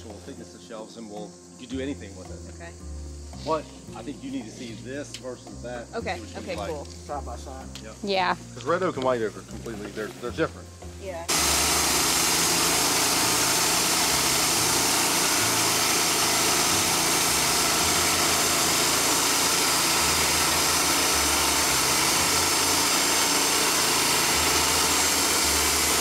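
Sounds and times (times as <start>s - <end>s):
band blade sawing wood: 11.3s - 26.0s
sawmill engine running: 11.3s - 26.0s.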